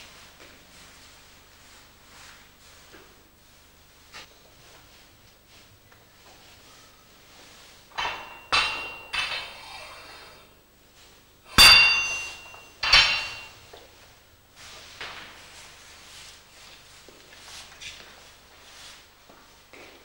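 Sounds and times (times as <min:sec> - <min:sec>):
heavy steel pieces clanging: 0:07.9 - 0:09.7, 0:11.5 - 0:13.6.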